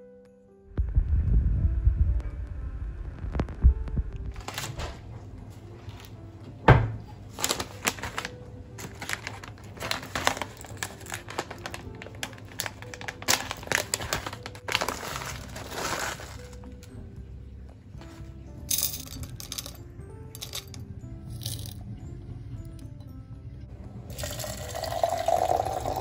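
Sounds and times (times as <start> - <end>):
soft background music: 0.0 - 26.0
plastic pouch crinkling: 4.3 - 5.0, 7.3 - 16.9.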